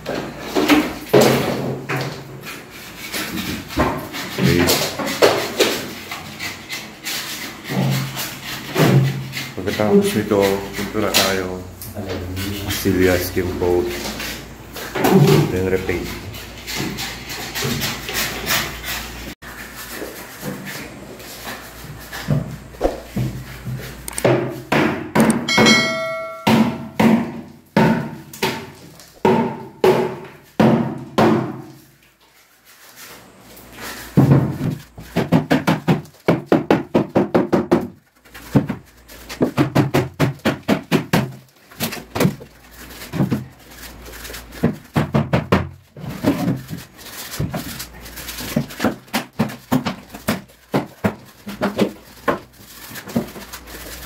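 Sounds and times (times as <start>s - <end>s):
brief metallic ring: 25.5s - 26.6s.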